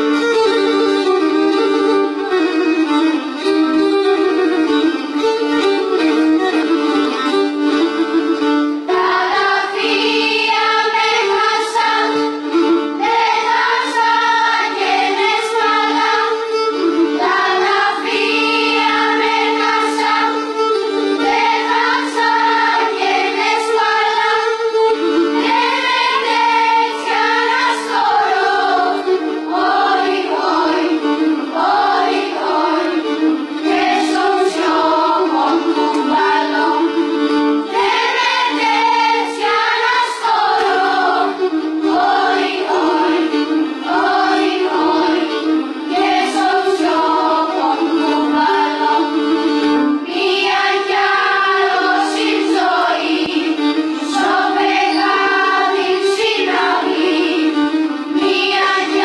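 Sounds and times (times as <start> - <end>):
choir of young voices singing: 9.0 - 12.3, 13.0 - 16.6, 17.2 - 24.6, 25.4 - 33.0, 33.6 - 37.0, 37.6 - 59.0.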